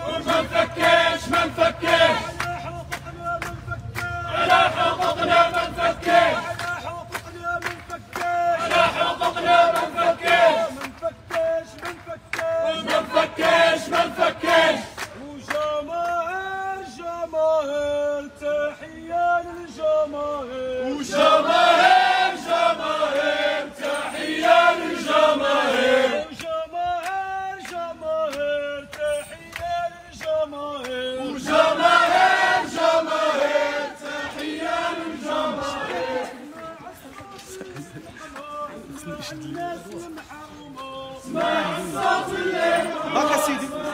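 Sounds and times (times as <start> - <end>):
crowd chanting slogans: 0.0 - 43.9.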